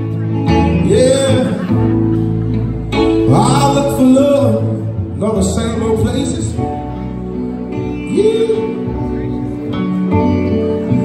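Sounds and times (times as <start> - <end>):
keyboard and guitar: 0.0 - 11.0
man singing: 0.4 - 2.1, 2.9 - 7.1, 7.7 - 9.8.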